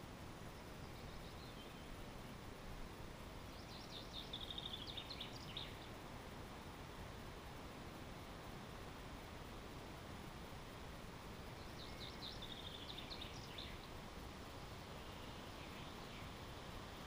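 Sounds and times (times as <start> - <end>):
songbird singing: 0.0 - 6.2, 11.0 - 17.0
faint background hiss: 0.0 - 17.0.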